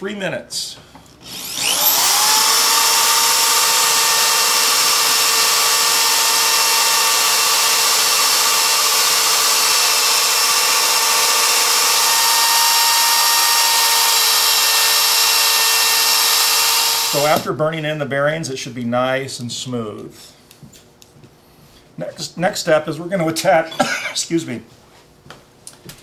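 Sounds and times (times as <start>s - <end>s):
electric drill whining: 1.2s - 17.5s.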